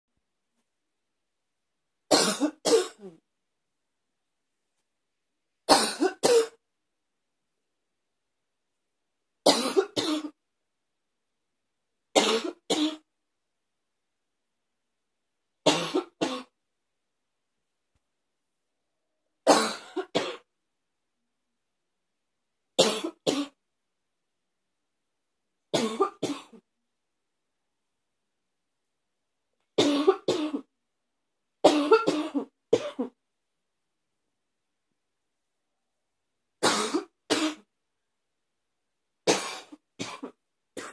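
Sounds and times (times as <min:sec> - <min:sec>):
person coughing harshly: 0:02.1 - 0:03.2, 0:05.7 - 0:06.6, 0:09.5 - 0:10.4, 0:12.2 - 0:13.1, 0:15.7 - 0:16.6, 0:19.5 - 0:20.5, 0:22.8 - 0:23.6, 0:25.8 - 0:26.6, 0:29.8 - 0:30.7, 0:31.6 - 0:33.2, 0:36.6 - 0:37.7, 0:39.3 - 0:40.9.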